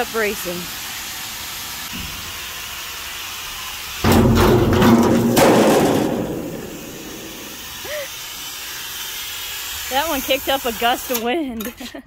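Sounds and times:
metal sheet slamming onto concrete: 0:04.0 - 0:07.7.

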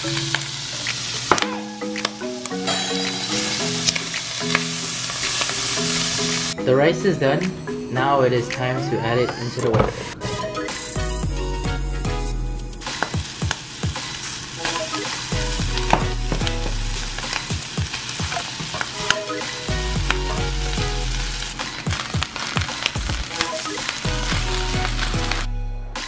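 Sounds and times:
food sizzling in a wok: 0:00.0 - 0:06.6, 0:12.8 - 0:25.5.

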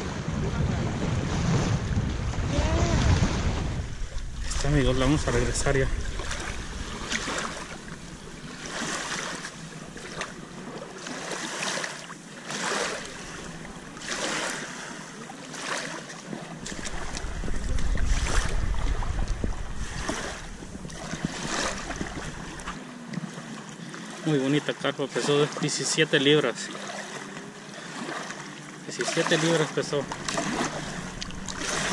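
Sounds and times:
wind rumbling on microphone: 0:00.0 - 0:11.0, 0:16.5 - 0:22.8, 0:30.0 - 0:31.9
waves lapping on shore: 0:00.0 - 0:31.9.

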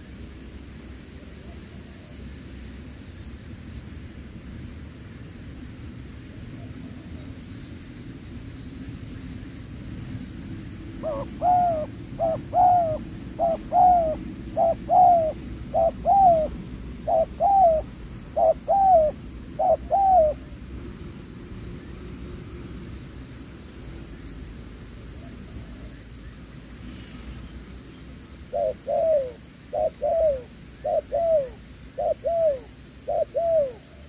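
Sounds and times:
dove cooing: 0:11.0 - 0:20.6, 0:28.5 - 0:34.0.

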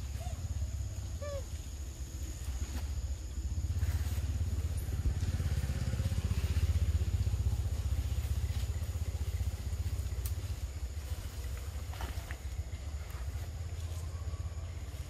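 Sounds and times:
engine rapidly pulsing rumble: 0:03.3 - 0:11.9.

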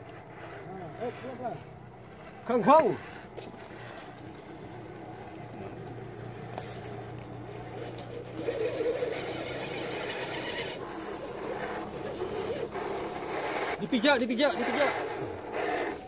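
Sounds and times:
toy truck electric motor whirring: 0:06.0 - 0:16.0.

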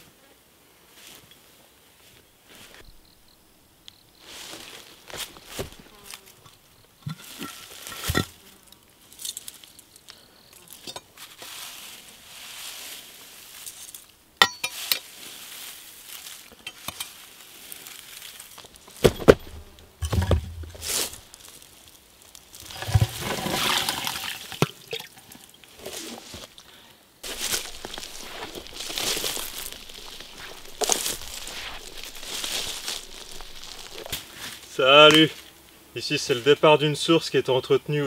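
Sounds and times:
concrete cover knocks and scrapes: 0:19.0 - 0:21.0, 0:22.7 - 0:23.8.

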